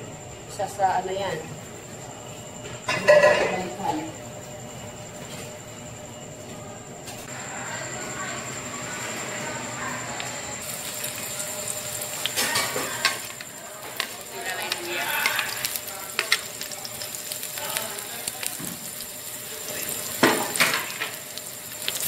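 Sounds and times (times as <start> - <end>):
garlic sizzling in hot oil: 7.4 - 22.0.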